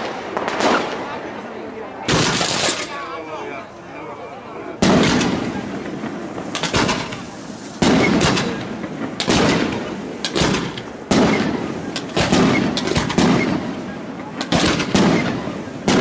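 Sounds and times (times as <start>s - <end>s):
firework shells bursting: 2.0s - 3.2s, 4.8s - 16.0s.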